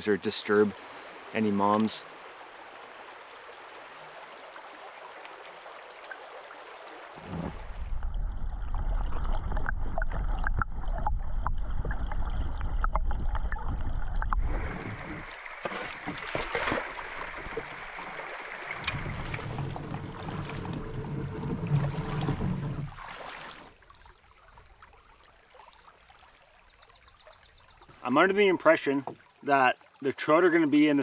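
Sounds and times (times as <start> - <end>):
river water running: 0.0 - 8.0, 14.3 - 31.0
muffled underwater current rush: 7.1 - 23.7
underwater clicks and ticks: 7.4 - 15.3.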